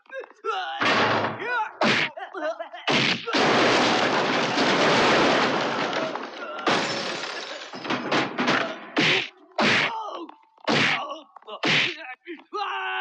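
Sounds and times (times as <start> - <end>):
wooden planks breaking and clattering: 0.8 - 1.4, 2.9 - 9.2.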